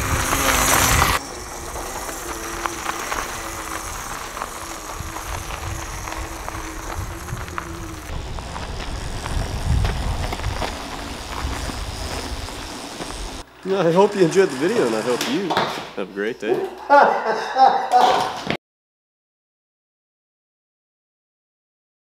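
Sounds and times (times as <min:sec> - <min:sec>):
stones crackling: 0:00.0 - 0:13.5
tyres crunching on gravel: 0:00.0 - 0:15.7.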